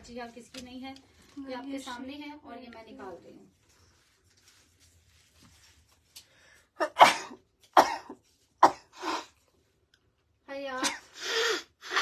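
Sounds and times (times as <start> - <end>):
person coughing: 6.8 - 9.2.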